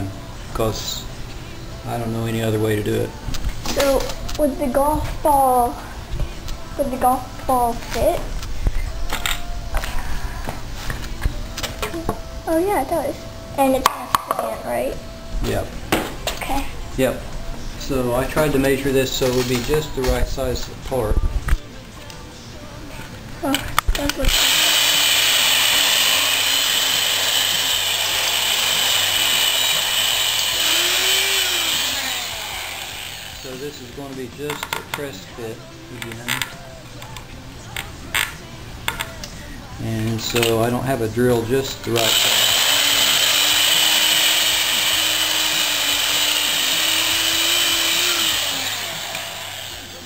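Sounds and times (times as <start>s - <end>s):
electric drill boring through wood: 24.1s - 33.9s, 41.9s - 50.0s.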